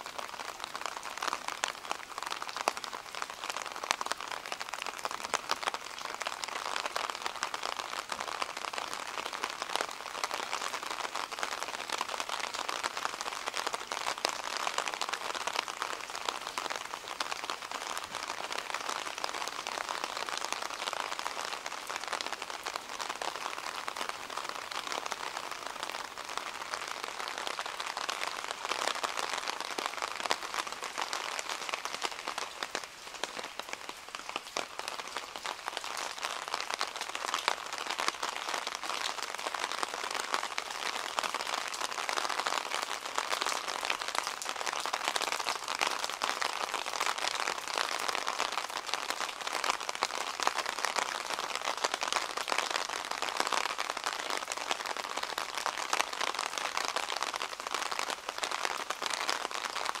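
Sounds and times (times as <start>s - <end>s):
rain on hard surfaces: 0.0s - 60.0s.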